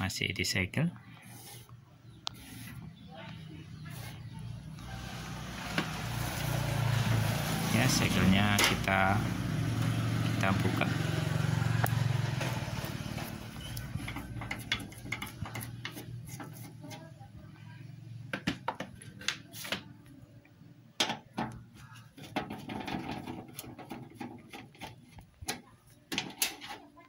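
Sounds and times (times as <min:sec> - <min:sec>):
motor vehicle passing: 0:01.1 - 0:19.6.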